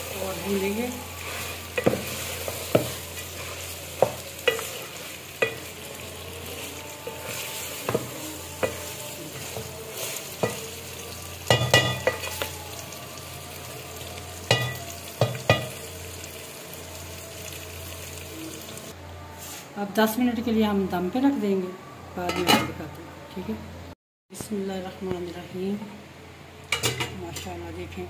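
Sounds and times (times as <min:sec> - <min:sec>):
food sizzling in a pot: 0:00.0 - 0:19.6.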